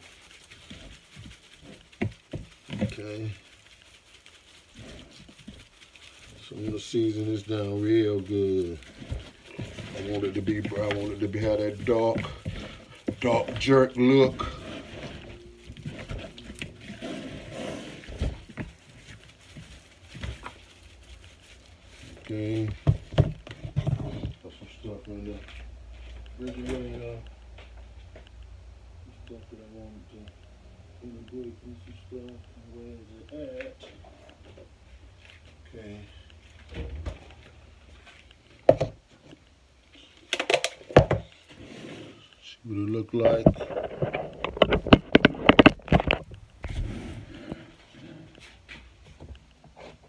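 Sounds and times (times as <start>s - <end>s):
seasoning shaker rattling: 0.0s - 23.5s
kitchen items knocking and clattering: 22.7s - 24.4s.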